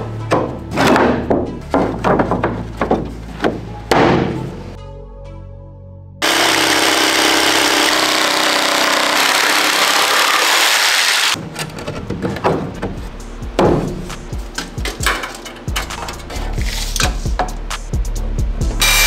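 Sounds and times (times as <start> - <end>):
wooden boards knocking: 0.3 - 4.5, 12.0 - 13.0
jigsaw cutting wood: 6.2 - 11.4.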